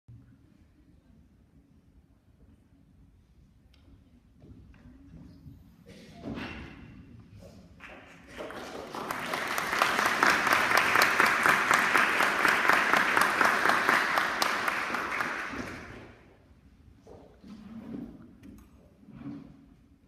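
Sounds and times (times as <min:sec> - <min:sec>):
audience applauding: 0:07.8 - 0:16.2.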